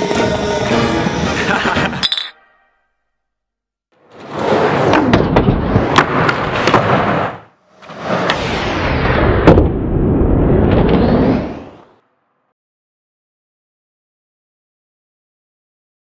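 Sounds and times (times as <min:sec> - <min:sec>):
skateboard rolling on a ramp: 0:04.0 - 0:08.5.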